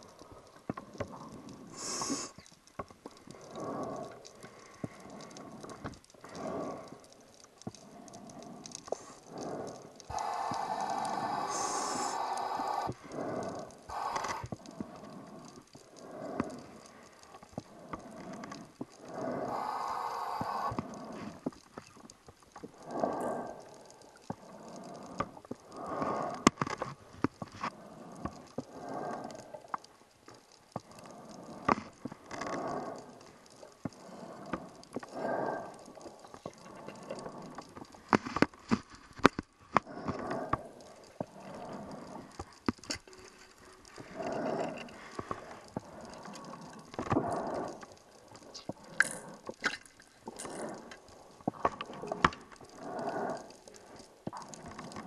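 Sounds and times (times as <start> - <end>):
sharp clicks: 0.0 - 55.0
regulator inhaling hiss: 1.7 - 2.5, 8.2 - 21.4, 52.7 - 55.0.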